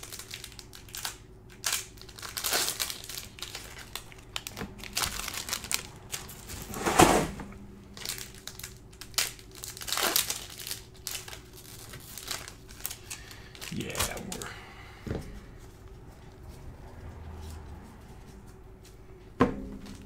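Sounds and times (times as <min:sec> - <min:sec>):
card pack wrappers crinkling: 0:00.0 - 0:06.6, 0:07.9 - 0:14.6.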